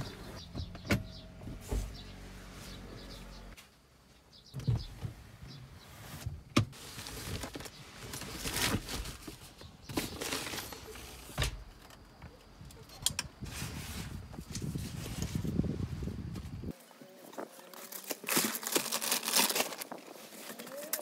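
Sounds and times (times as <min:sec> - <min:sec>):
rustling: 0:05.8 - 0:11.4.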